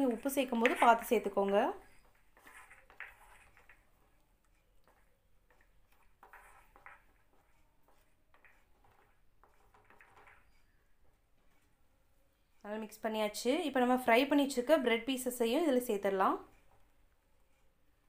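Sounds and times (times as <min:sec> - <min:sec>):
wooden spatula scraping pan: 0:00.0 - 0:11.8.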